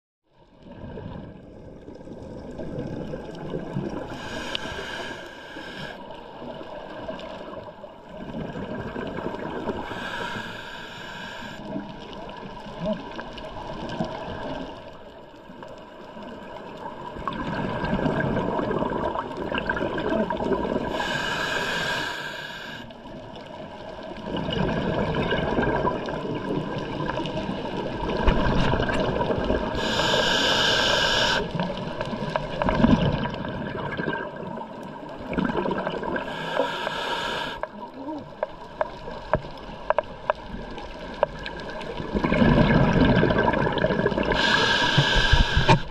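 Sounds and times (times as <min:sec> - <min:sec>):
exhaled bubbles rumbling: 0:00.5 - 0:04.8, 0:06.2 - 0:10.0, 0:16.2 - 0:21.2, 0:23.0 - 0:30.2, 0:31.5 - 0:36.4, 0:37.7 - 0:45.9
regulator hissing inhalations: 0:04.1 - 0:06.0, 0:09.8 - 0:11.6, 0:20.9 - 0:22.9, 0:29.8 - 0:31.5, 0:36.2 - 0:37.7, 0:44.3 - 0:45.9.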